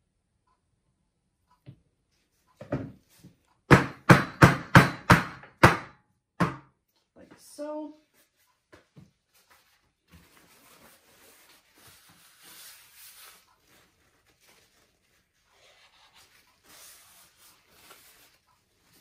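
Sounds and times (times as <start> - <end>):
paper towel rubbing: 9.1 - 19.0.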